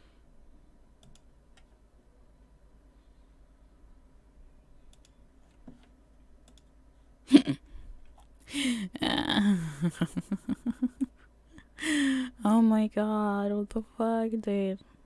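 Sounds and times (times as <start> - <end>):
mouse clicks: 1.0 - 1.7, 4.9 - 5.2, 5.8 - 6.7
woman laughing: 7.3 - 7.7, 8.5 - 12.2
woman groaning: 8.5 - 9.8
woman gasping: 8.5 - 9.9, 11.6 - 12.4.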